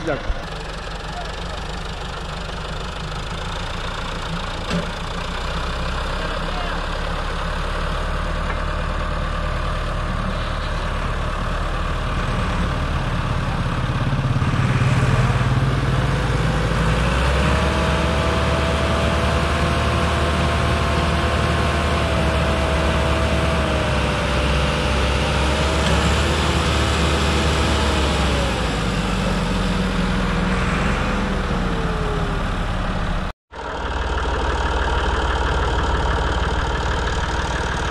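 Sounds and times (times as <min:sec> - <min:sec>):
engine whine: 0:00.0 - 0:37.9
tractor diesel engine labouring: 0:00.0 - 0:37.9.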